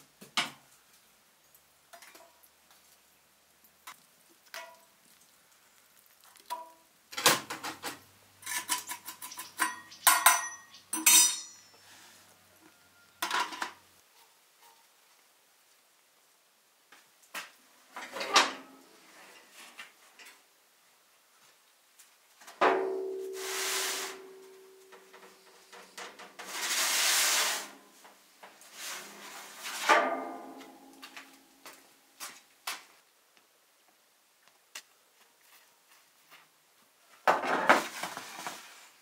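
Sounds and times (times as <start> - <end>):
pot clinking: 8.6 - 11.8
rustling hiss-like bursts: 23.3 - 24.5, 25.3 - 29.9.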